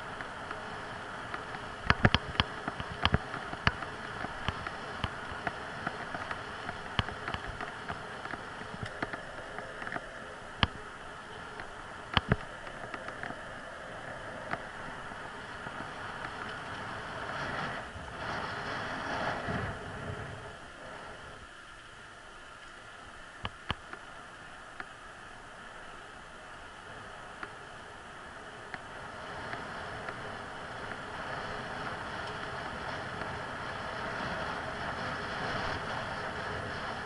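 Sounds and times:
wind noise: 0.0 - 21.6, 26.7 - 37.0
bicycle rolling on asphalt: 0.0 - 37.0
bike clicks and knocks: 0.1 - 10.8, 11.5 - 13.5.

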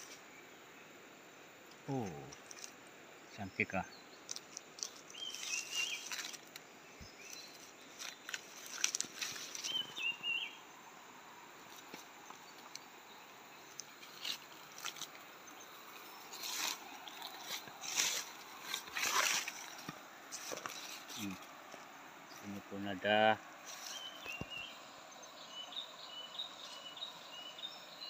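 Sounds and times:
bird chirping call: 4.9 - 7.7, 9.5 - 10.6, 22.3 - 28.0
footsteps through dry leaves: 5.2 - 6.5, 7.3 - 10.0, 16.3 - 21.4.

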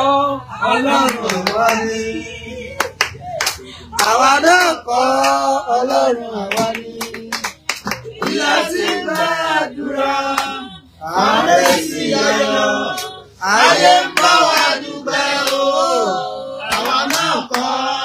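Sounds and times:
hand claps: 1.0 - 1.8, 2.8 - 5.4, 6.4 - 9.4, 14.1 - 14.8, 16.7 - 17.8.

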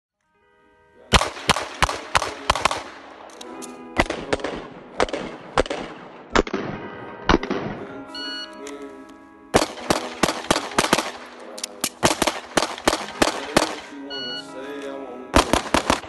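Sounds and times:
background music: 0.2 - 16.0
pistol shots: 1.1 - 8.0, 9.5 - 14.2, 15.4 - 16.0.

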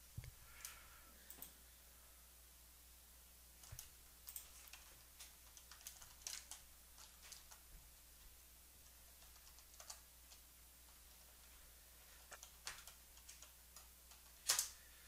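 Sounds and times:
keyboard typing: 3.6 - 7.7, 8.8 - 11.4, 12.2 - 14.8.

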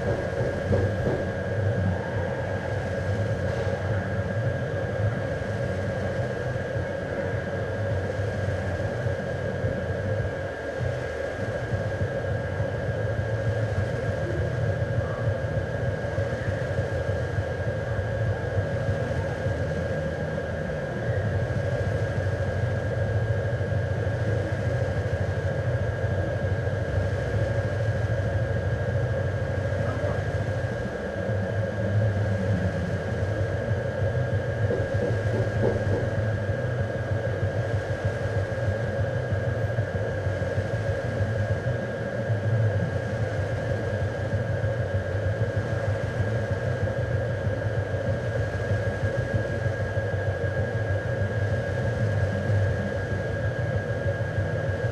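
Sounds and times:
low rumbling machine drone: 0.0 - 54.9
thin constant whine: 0.0 - 54.9.

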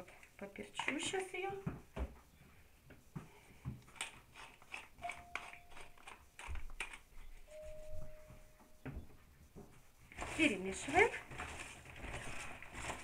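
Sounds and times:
pepper mill grinding: 4.0 - 7.0
faint steady tone: 7.4 - 9.6.

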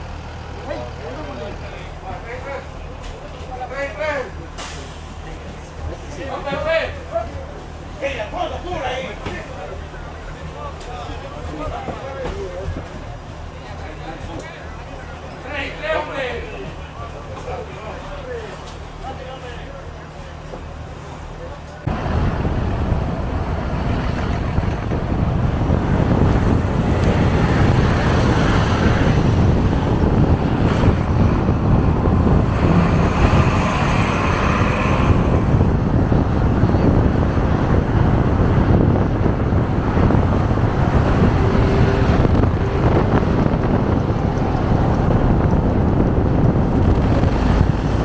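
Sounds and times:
vehicle noise: 0.0 - 48.0
wind buffeting microphone: 21.8 - 48.0.

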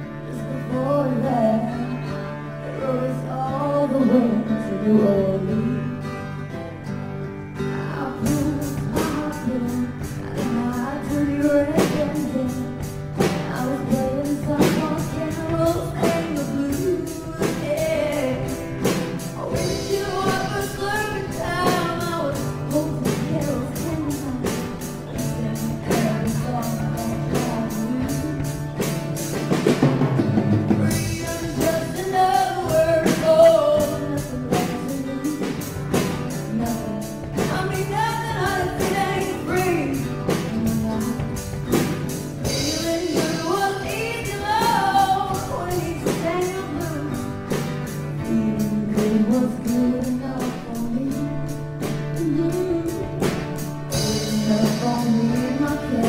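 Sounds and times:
song with singing and guitar: 0.0 - 56.0.

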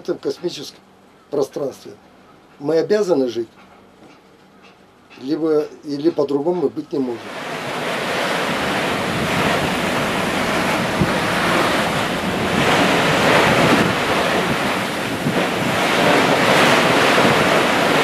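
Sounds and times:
ocean waves washing: 7.0 - 18.0
wind buffeting microphone: 7.3 - 18.0.

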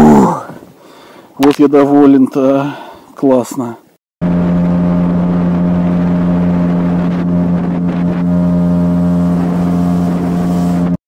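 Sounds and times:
outboard motor humming: 4.2 - 11.0.

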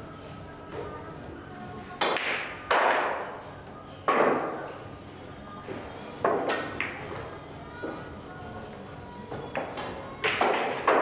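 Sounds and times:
pool balls knocking: 2.0 - 3.4, 4.0 - 4.8, 6.2 - 8.0, 9.3 - 11.0.

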